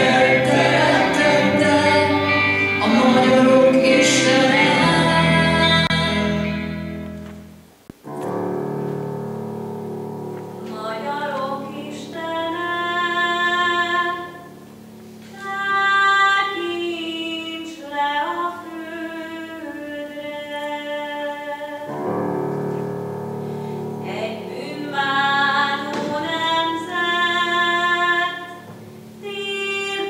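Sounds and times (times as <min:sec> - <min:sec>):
woman singing classical with vibrato: 0:00.0 - 0:06.7, 0:10.6 - 0:22.1, 0:24.0 - 0:30.0
held instrumental notes: 0:00.0 - 0:17.9
instrumental music: 0:00.0 - 0:30.0.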